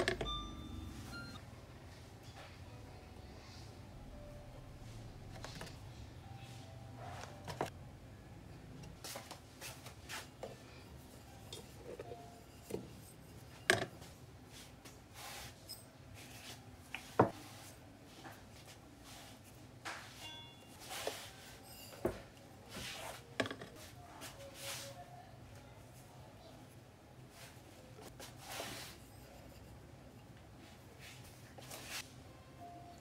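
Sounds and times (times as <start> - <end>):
bowls scraping and tapping: 10.4 - 14.1, 20.8 - 23.8.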